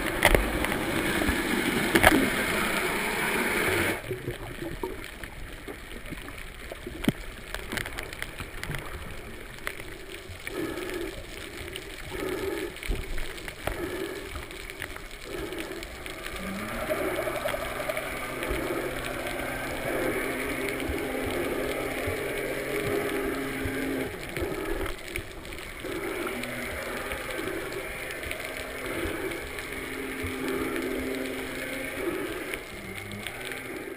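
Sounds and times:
low steady hum: 0.0 - 33.9
underwater gurgling and rushing: 0.0 - 33.9
soft pulses: 8.0 - 33.9.

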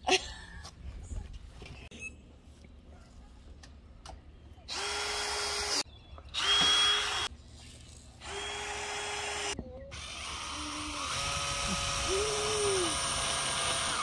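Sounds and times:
cordless drill driving screws: 4.7 - 5.8, 6.4 - 7.3, 8.2 - 14.0.

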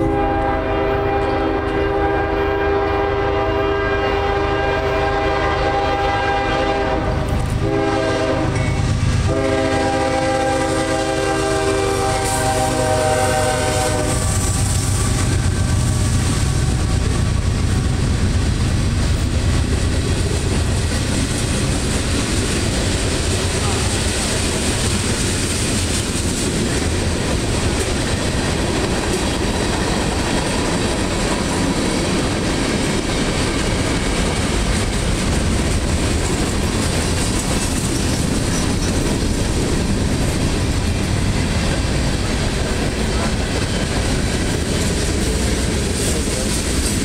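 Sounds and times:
locomotive air horn blowing: 0.0 - 16.8
train wheels clattering on rails: 6.9 - 47.0.

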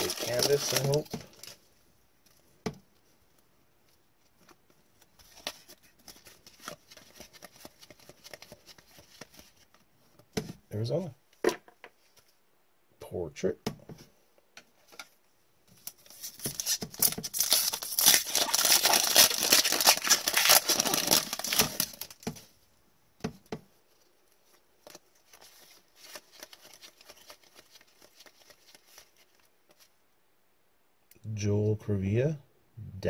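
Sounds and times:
wrapper tearing and crinkling: 0.0 - 1.6, 16.0 - 22.2.

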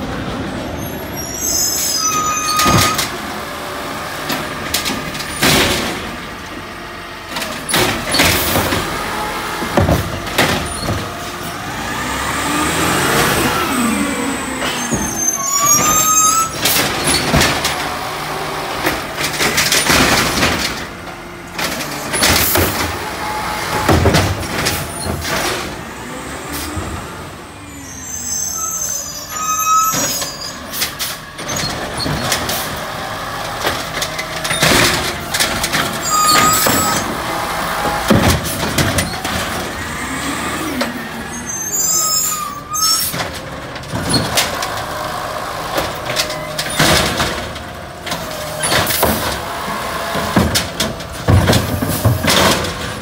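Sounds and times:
garbage truck engine revving: 0.0 - 53.0
hydraulic arm lifting carts: 0.0 - 53.0
bangs and knocks: 7.3 - 11.4, 18.7 - 25.8, 33.5 - 39.8, 45.7 - 53.0.

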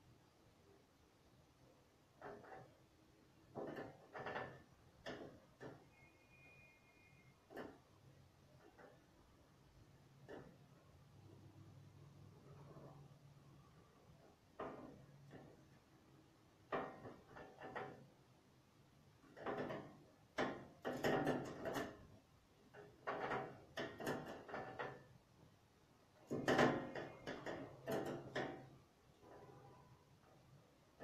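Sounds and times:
knocks clicks and scrapes from handling: 2.2 - 2.8, 3.5 - 6.1, 16.7 - 18.2, 19.3 - 25.2, 26.2 - 29.8.

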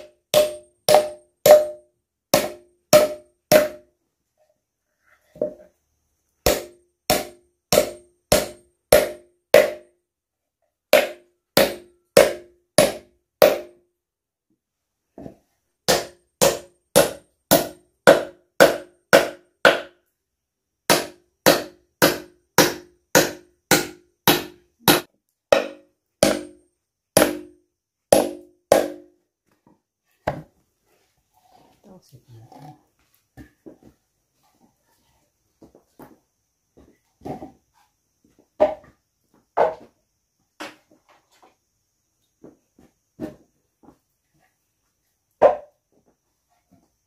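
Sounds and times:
hammer driving nails into wood: 20.9 - 26.6, 27.2 - 29.1.

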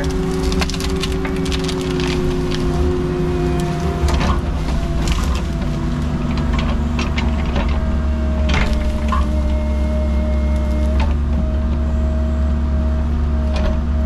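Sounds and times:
wood cracking and snapping: 0.0 - 11.2
excavator diesel engine running: 0.0 - 14.0
hydraulic whine: 0.0 - 14.0.

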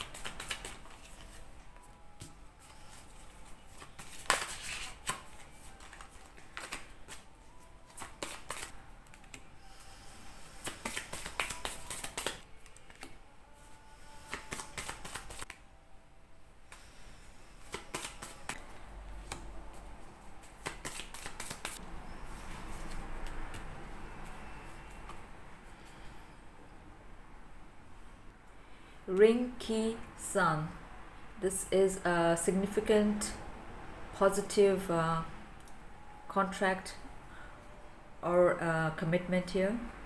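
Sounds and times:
cards flicking and sliding on table: 3.8 - 7.2, 7.9 - 9.4, 10.5 - 13.2, 14.2 - 15.6, 17.6 - 18.6, 20.5 - 21.8.

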